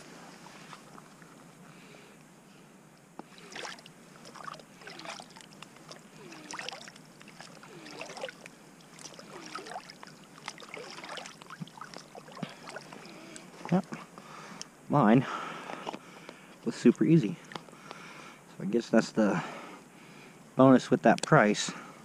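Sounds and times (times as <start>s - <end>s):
water sloshing and gurgling: 3.2s - 14.5s
bubbles glugging: 3.3s - 13.9s.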